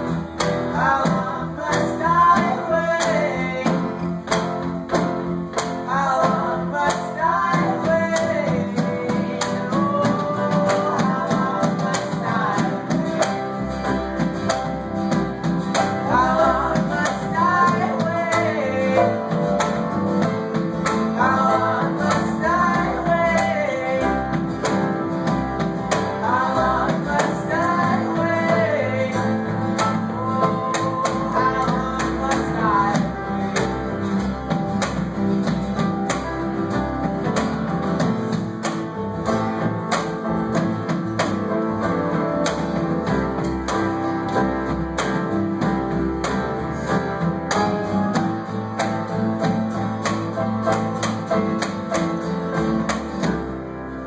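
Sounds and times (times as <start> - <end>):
person singing: 0.0 - 4.6, 5.6 - 14.3, 15.7 - 34.9
strummed acoustic guitar: 0.0 - 54.0
upright bass: 0.0 - 54.0.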